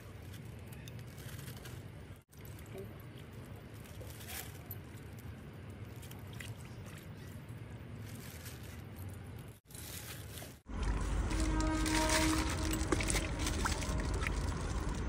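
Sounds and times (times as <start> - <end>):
plastic bag crinkling: 7.9 - 15.0
gravy sloshing and pouring: 9.8 - 15.0.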